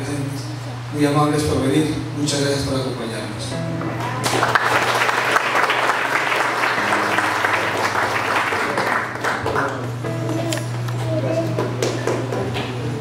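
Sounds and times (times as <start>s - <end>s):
crowd clapping: 3.9s - 12.8s.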